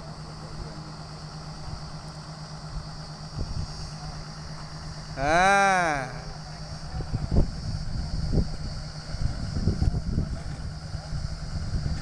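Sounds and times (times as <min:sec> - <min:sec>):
engine idling: 0:00.0 - 0:12.0
loud rising and falling call: 0:05.2 - 0:06.3.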